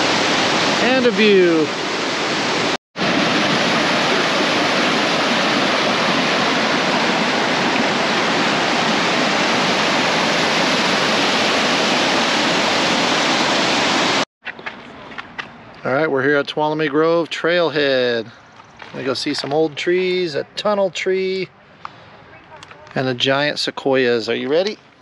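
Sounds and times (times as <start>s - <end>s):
waterfall roaring: 0.0s - 14.2s.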